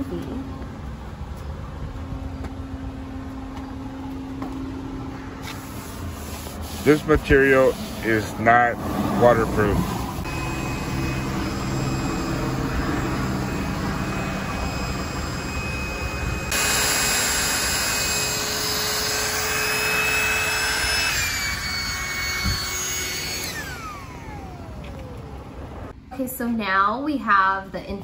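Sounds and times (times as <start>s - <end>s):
electric air pump whining: 5.4s - 25.9s.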